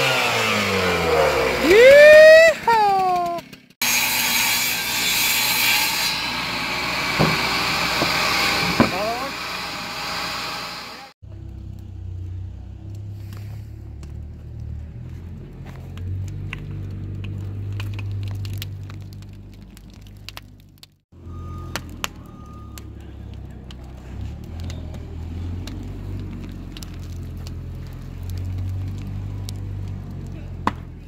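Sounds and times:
fire rumbling: 0:00.0 - 0:03.8, 0:06.4 - 0:31.0
fire crackling and popping: 0:11.2 - 0:31.0.

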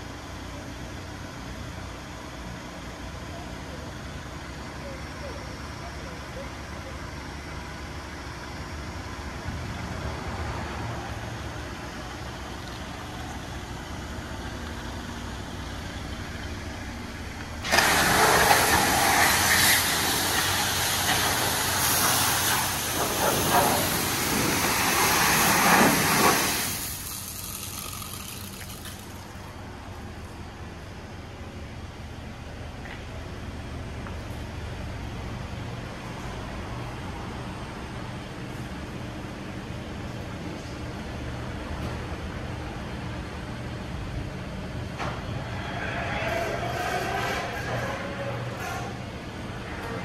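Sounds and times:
water spray against car: 0:17.6 - 0:29.4.

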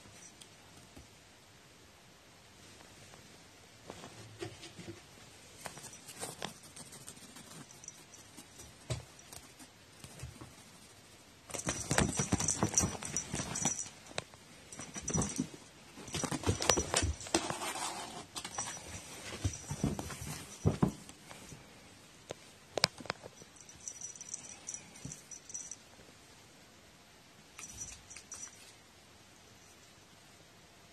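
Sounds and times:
cat rustling against microphone: 0:03.9 - 0:14.0.

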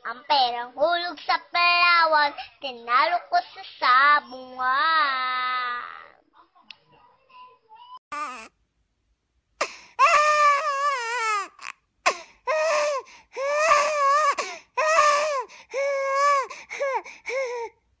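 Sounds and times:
catches of breath: 0:09.6 - 0:10.1, 0:12.0 - 0:13.6, 0:14.2 - 0:17.8.

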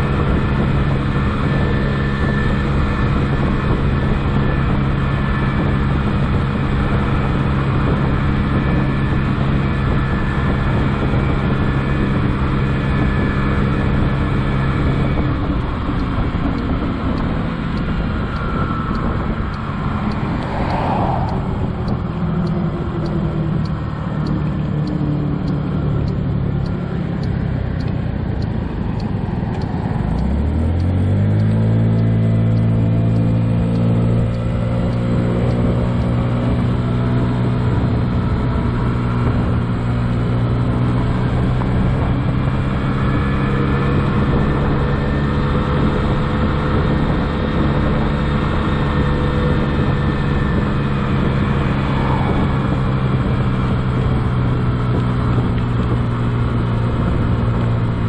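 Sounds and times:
scooter engine running: 0:00.0 - 0:58.0
wind and road noise: 0:00.0 - 0:58.0.

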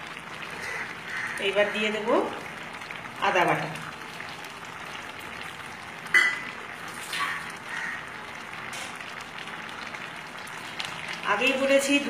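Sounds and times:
dal sizzling and bubbling: 0:00.0 - 0:12.0
spoon clinking against pan: 0:06.1 - 0:06.5.

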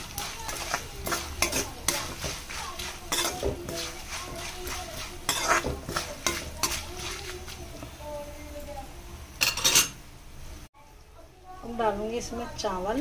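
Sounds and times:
metal spatula scraping a pan: 0:00.0 - 0:07.6
light sizzle of oil: 0:00.0 - 0:13.0.

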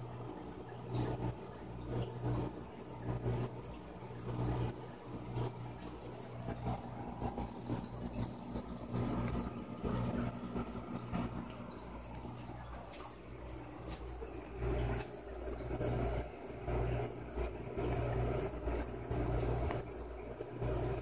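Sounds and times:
aquarium water running and bubbling: 0:00.0 - 0:21.0
steady low hum: 0:00.0 - 0:21.0.

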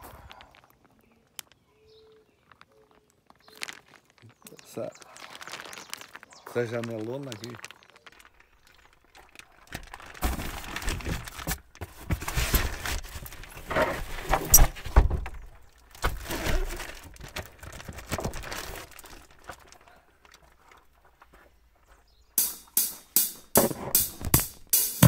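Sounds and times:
plastic wrap crinkling: 0:00.2 - 0:21.4
sharp knock: 0:22.4 - 0:25.0.

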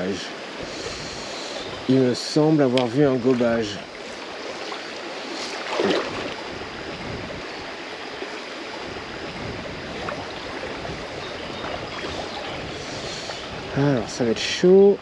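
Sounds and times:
river flowing over stones: 0:00.0 - 0:15.0.

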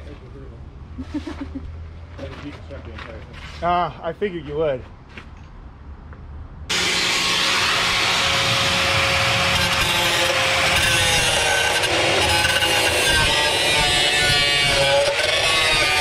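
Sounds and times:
angle grinder grinding steel: 0:06.7 - 0:16.0.

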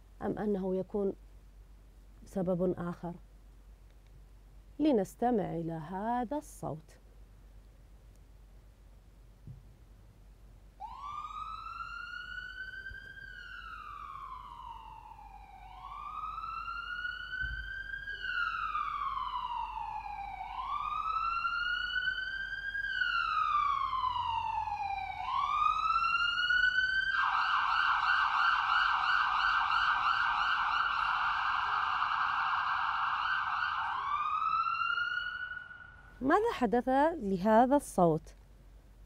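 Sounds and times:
police siren wailing and yelping: 0:10.8 - 0:36.1.

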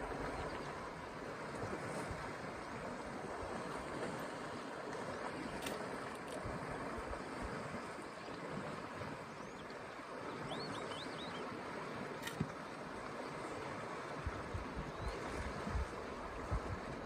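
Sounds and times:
faint high bird chirps: 0:09.4 - 0:11.5.

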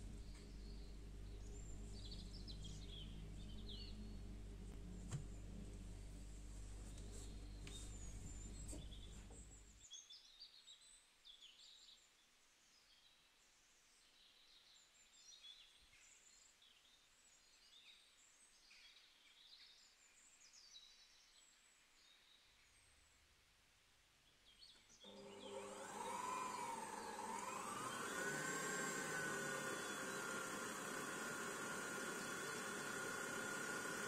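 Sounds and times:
low hum: 0:00.0 - 0:09.8
stand mixer motor whirring: 0:25.1 - 0:34.0.

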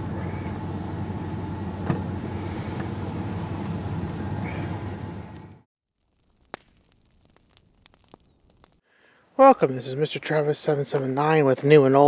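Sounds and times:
truck engine running: 0:00.0 - 0:05.6
road noise: 0:00.0 - 0:05.7.

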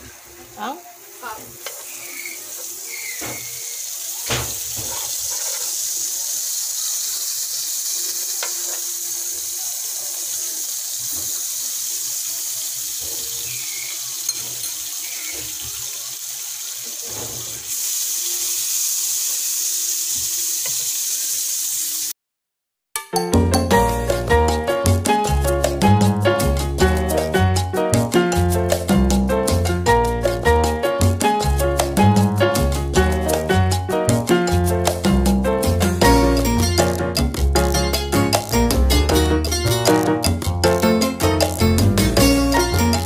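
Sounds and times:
butter sizzling in a pan: 0:00.0 - 0:22.1, 0:34.8 - 0:43.0.

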